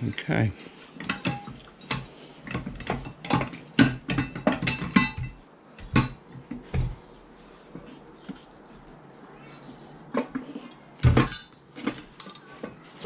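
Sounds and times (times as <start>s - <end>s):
metal tools clanking: 11.0s - 13.0s.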